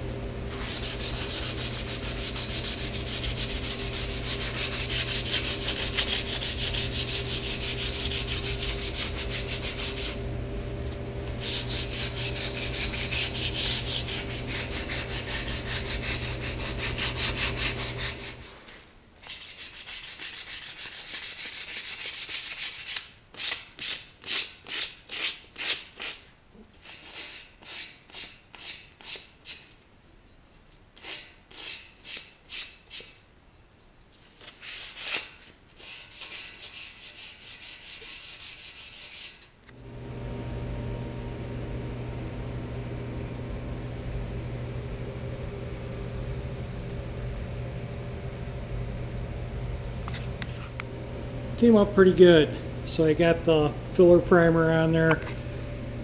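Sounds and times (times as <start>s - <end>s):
motor hum: 0.0s - 18.5s, 39.7s - 56.0s
sandpaper rubbing on metal: 0.5s - 10.2s, 11.4s - 29.7s, 30.4s - 33.2s, 34.4s - 39.5s.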